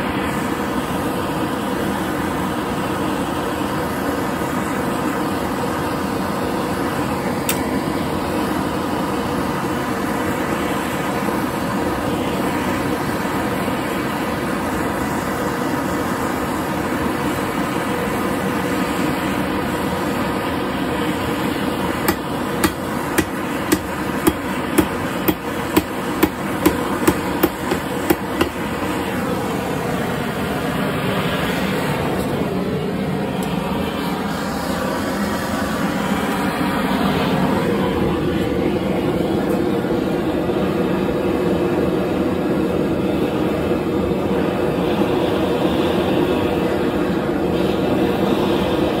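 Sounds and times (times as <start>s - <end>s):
propane torch flame rushing: 0.0s - 49.0s
hammer striking hot metal on anvil: 22.0s - 28.8s.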